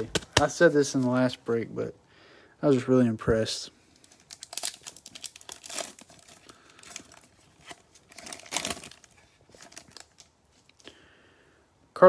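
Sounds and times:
wrapper crinkling and tearing: 3.9s - 10.8s.

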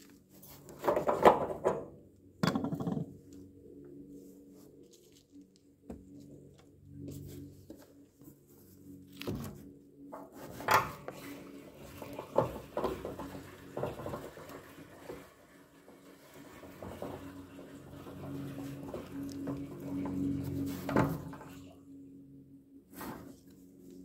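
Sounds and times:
metal clanks and knocks: 0.8s - 3.2s.

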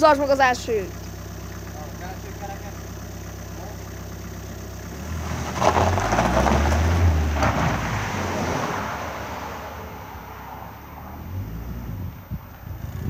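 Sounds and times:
tyres crunching over gravel: 0.0s - 9.1s
car engine revving: 0.0s - 13.0s.

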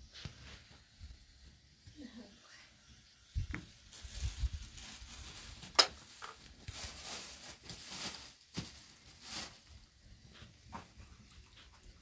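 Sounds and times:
plastic bag rustling: 3.5s - 11.0s.

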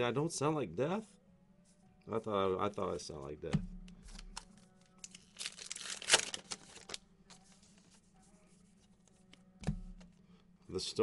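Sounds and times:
wrapper tearing and crinkling: 5.0s - 7.0s.

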